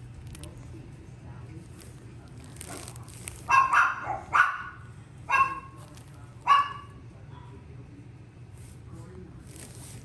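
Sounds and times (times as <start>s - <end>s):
small dog yapping: 3.5s - 5.8s, 6.4s - 6.9s.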